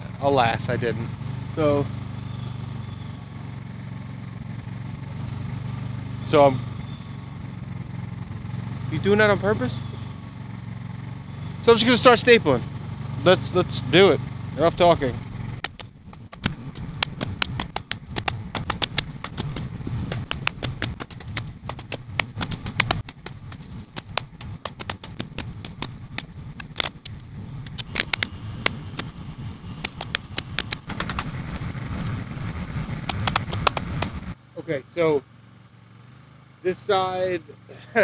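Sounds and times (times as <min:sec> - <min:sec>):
generator humming: 0:14.8 - 0:34.4.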